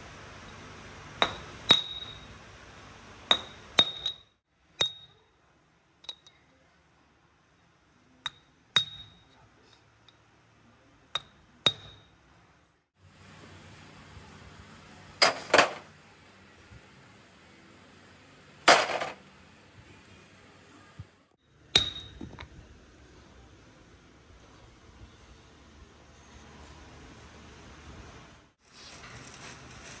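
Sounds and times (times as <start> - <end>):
hammer striking metal punch: 1.2 - 2.2, 3.3 - 4.2, 11.2 - 12.1, 15.2 - 15.9, 21.7 - 22.2.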